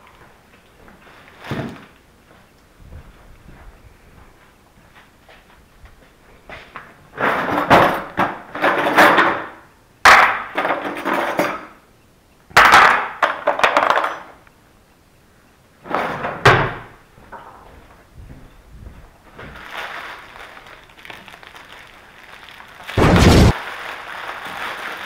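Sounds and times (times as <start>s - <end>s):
cutlery clattering in drawer: 10.6s - 11.6s.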